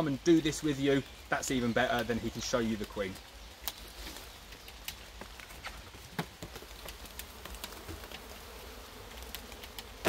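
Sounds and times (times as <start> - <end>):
honeybees buzzing: 3.5 - 10.0.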